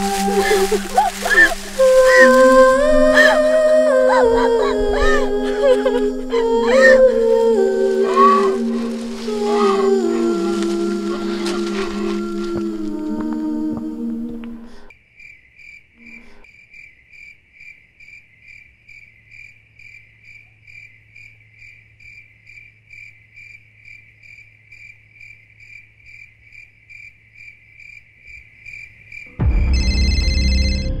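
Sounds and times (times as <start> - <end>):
music: 0.0 - 14.9, 29.3 - 31.0
cricket chirping: 0.0 - 29.4.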